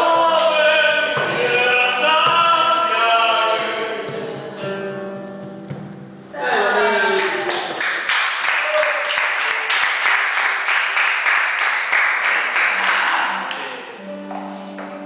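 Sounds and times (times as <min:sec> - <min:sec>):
guitar notes: 0:00.0 - 0:07.4, 0:12.9 - 0:15.0
people clapping: 0:07.1 - 0:13.8.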